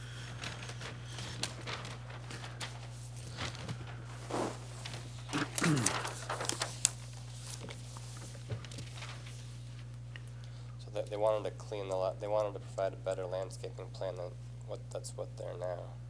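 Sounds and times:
steady low hum: 0.0 - 16.0
small clicks and rustles: 0.2 - 10.5.

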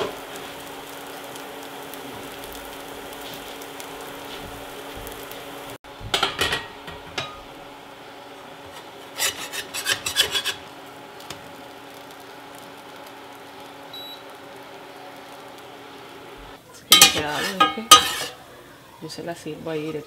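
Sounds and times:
metal spatula scraping skillet: 8.6 - 10.7, 16.9 - 18.4.

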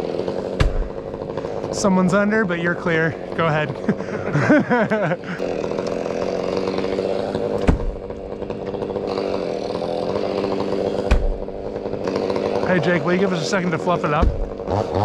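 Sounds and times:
chainsaw running: 0.0 - 15.0
heavy thumps: 0.5 - 1.8, 7.2 - 8.8, 11.0 - 11.6, 14.2 - 14.7.

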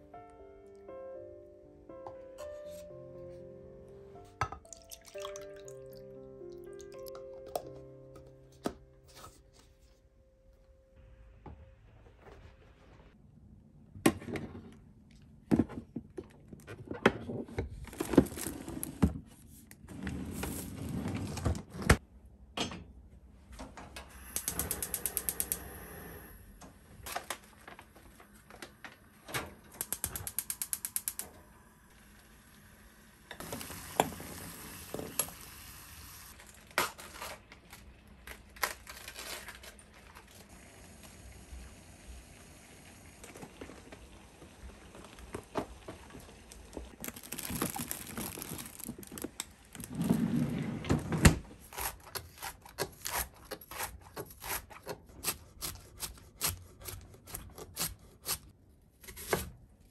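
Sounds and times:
gas stove igniter clicking: 24.2 - 25.7, 29.8 - 31.2
cabbage leaves rustling: 47.0 - 49.3.

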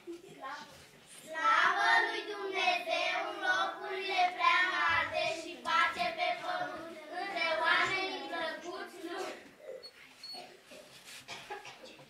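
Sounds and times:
girls singing together: 1.3 - 9.6.

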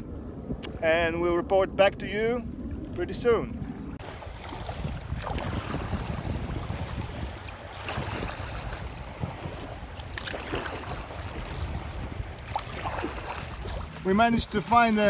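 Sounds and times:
wind rumble on microphone: 0.0 - 15.0
kayak paddle splashing: 4.0 - 15.0.

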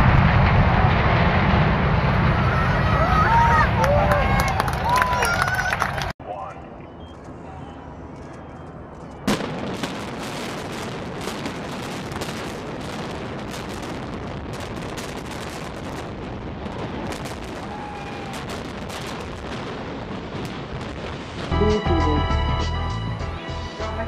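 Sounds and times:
demolition charges detonating: 0.0 - 4.4
building collapsing: 0.0 - 6.1.

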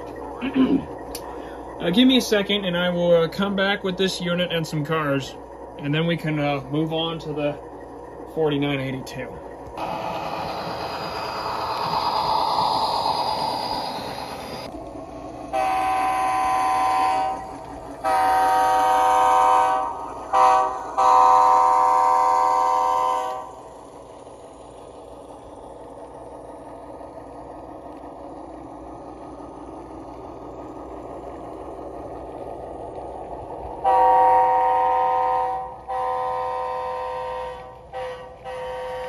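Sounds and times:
model locomotive running sound: 0.0 - 39.0
loud swell of noise: 9.8 - 14.8
model locomotive horn: 15.4 - 24.0, 33.8 - 39.0.

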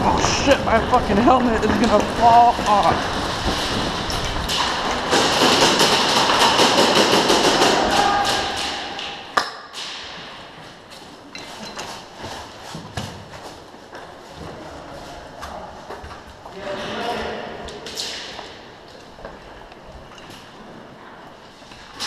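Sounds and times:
airsoft guns firing: 4.4 - 10.2.

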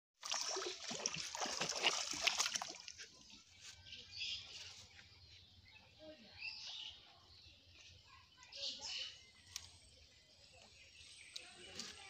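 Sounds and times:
fish splashing in shallow water: 0.2 - 3.5.

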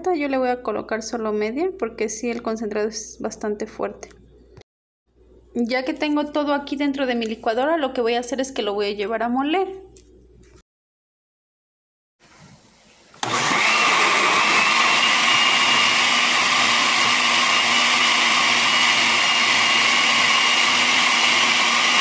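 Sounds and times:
blender motor running: 13.2 - 22.0.

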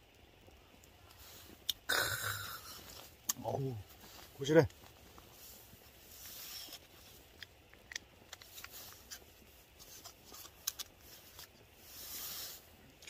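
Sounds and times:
plastic wrapper crinkling: 3.9 - 11.8.

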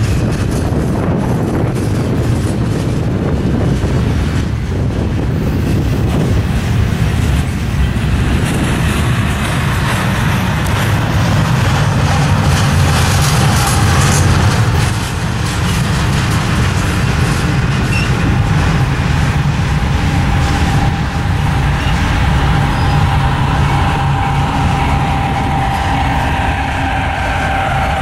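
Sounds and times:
train wheels rumbling on rails: 0.0 - 28.0
faint high squeal: 20.5 - 28.0.

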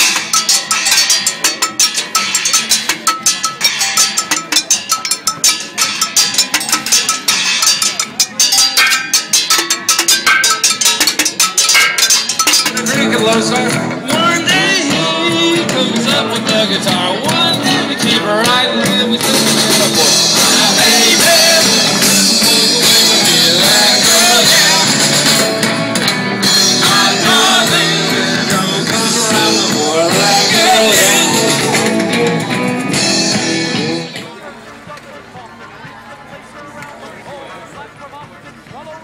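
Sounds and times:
scrap metal percussion clanging: 0.0 - 34.4
band playing music: 0.0 - 36.6
person singing: 12.8 - 25.6, 26.5 - 34.2.

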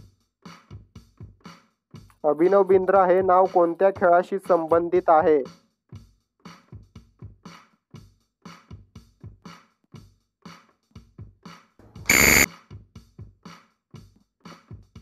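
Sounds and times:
electronic ticking beat: 12.1 - 12.5
loud alarm beep: 12.1 - 12.5.

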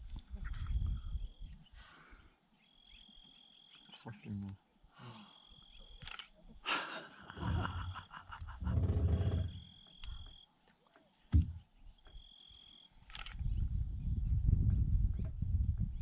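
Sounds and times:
sharp thump: 11.3 - 11.6.

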